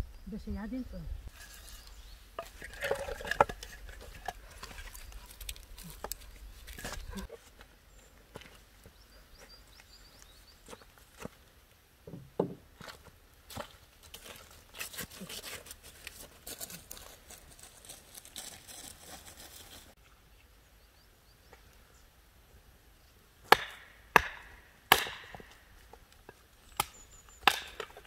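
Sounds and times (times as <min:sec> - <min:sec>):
rustling: 0:01.2 - 0:11.6, 0:12.7 - 0:20.5
axe chopping into wood: 0:23.5 - 0:25.6, 0:26.8 - 0:28.0.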